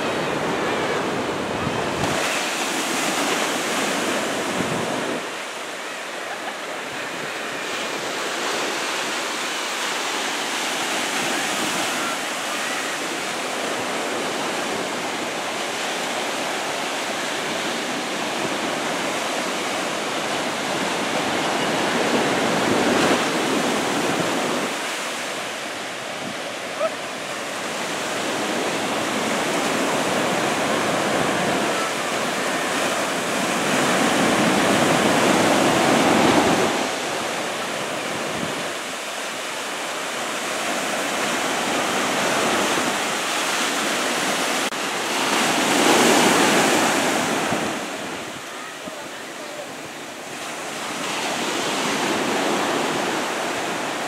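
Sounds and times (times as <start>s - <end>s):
ocean waves breaking on beach: 0.0s - 54.0s.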